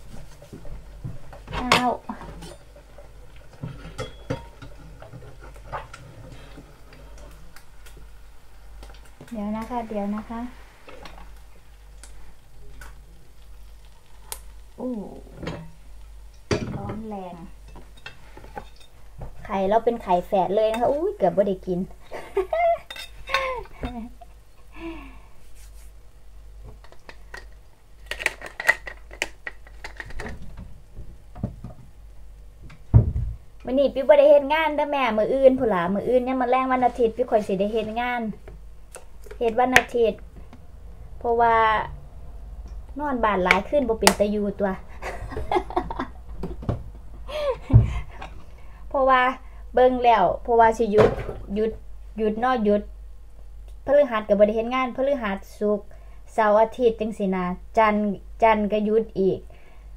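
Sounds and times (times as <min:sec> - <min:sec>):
utensils and dishes clinking: 0:03.7 - 0:05.1.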